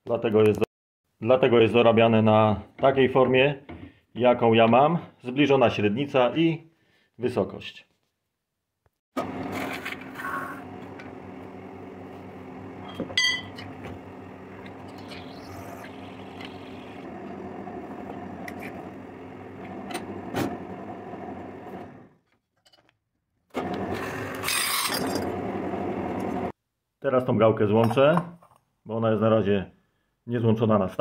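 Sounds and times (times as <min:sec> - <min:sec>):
lathe humming: 0:13.6 - 0:22.0.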